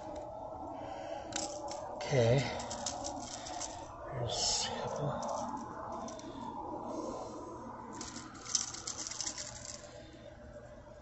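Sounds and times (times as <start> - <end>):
pliers and fishing hooks jingling: 2.5 - 3.8, 8.0 - 9.9.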